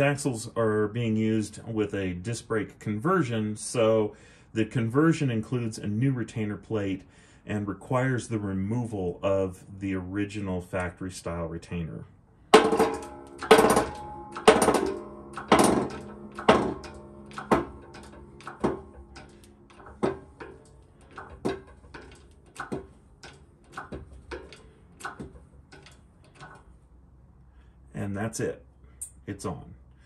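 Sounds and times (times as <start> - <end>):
press making metallic knocks: 12.5 - 26.8.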